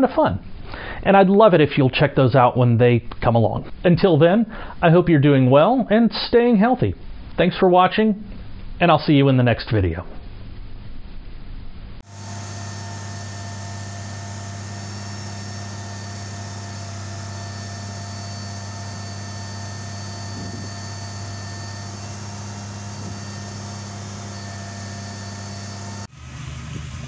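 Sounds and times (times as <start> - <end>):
wind on microphone: 20.3 - 20.8.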